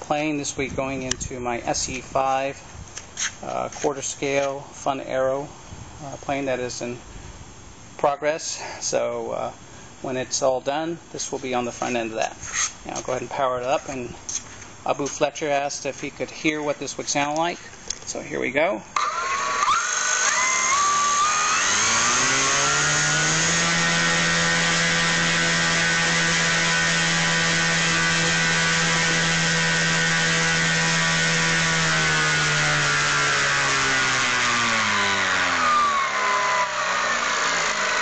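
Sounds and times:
electric motor and propeller whine: 19.0 - 38.0.

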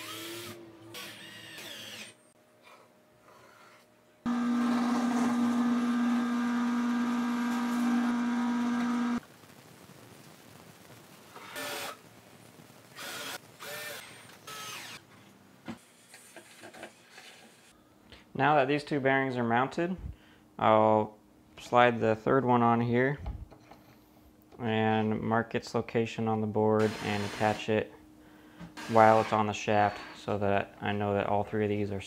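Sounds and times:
cordless drill running: 0.0 - 2.2, 4.3 - 9.2, 11.5 - 12.0, 13.0 - 15.0.

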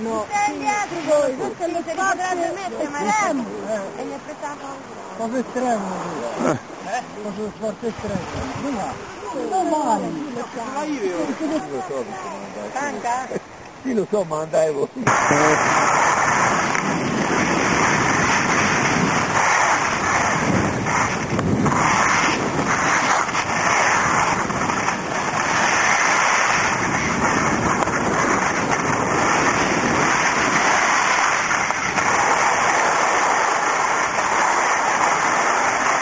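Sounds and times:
skis sliding over snow: 0.0 - 13.4, 14.5 - 36.0
wind on microphone: 7.8 - 12.2, 15.0 - 36.0.

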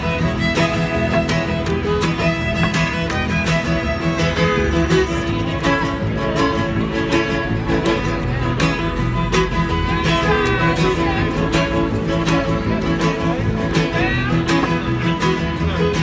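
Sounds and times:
acoustic guitar: 0.0 - 16.0
fiddle: 0.0 - 16.0
upright bass: 0.0 - 16.0.

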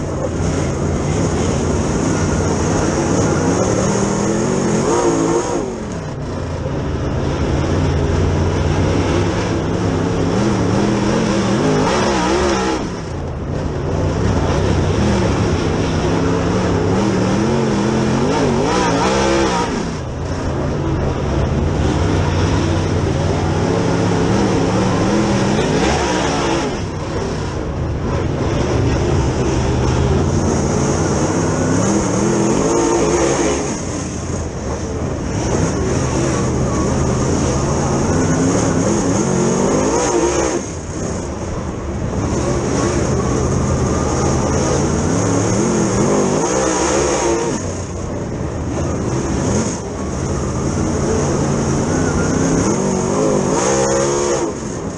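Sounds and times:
racing engine under throttle: 0.0 - 54.9.

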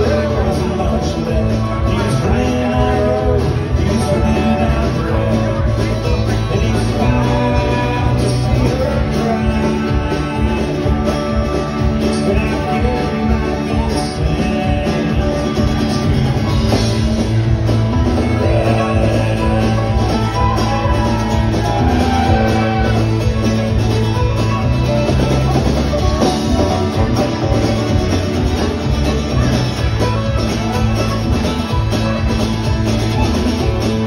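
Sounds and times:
country-rock band playing: 0.0 - 34.0
fiddle: 0.0 - 34.0.

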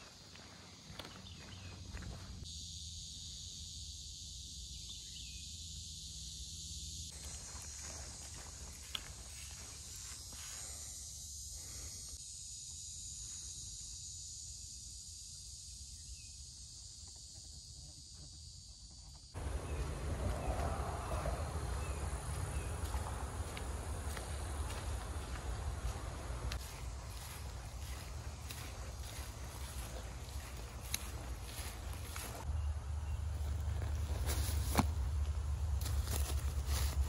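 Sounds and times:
faint footsteps on trail: 0.0 - 2.4, 7.1 - 10.8, 19.4 - 37.0
insect chorus buzzing: 0.0 - 37.0.

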